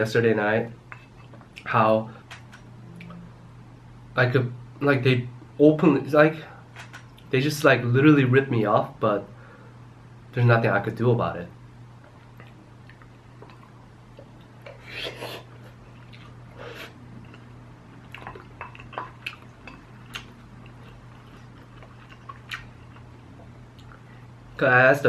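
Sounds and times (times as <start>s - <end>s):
low steady hum: 0.0s - 25.0s
chewing: 12.2s - 24.1s.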